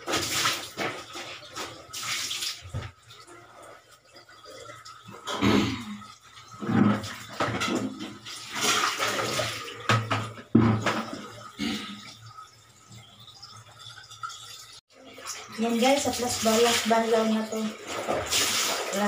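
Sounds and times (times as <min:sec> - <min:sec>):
water pouring and splashing: 0:00.0 - 0:19.0.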